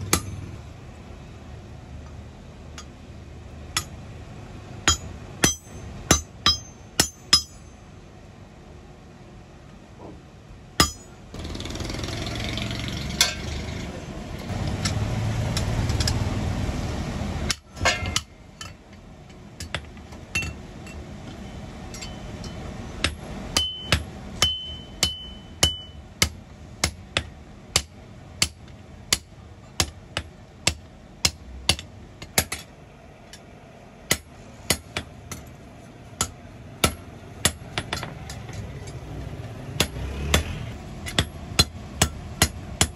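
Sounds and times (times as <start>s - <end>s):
hammer striking metal on anvil: 0.0s - 0.6s, 3.7s - 4.0s, 4.8s - 7.8s, 10.8s - 11.2s, 13.1s - 13.8s, 17.5s - 18.8s, 19.6s - 32.7s, 36.2s - 39.0s, 39.8s - 42.9s.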